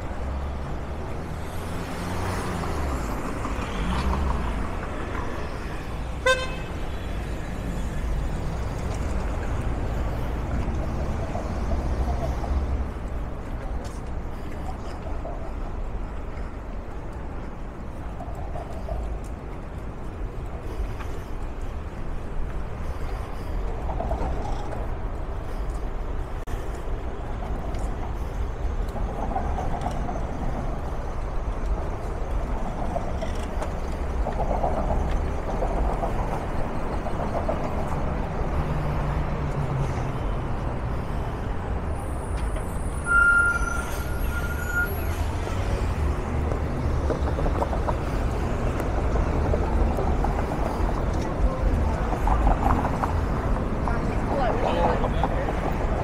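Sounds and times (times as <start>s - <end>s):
rumble of passing traffic: 0.0s - 56.0s.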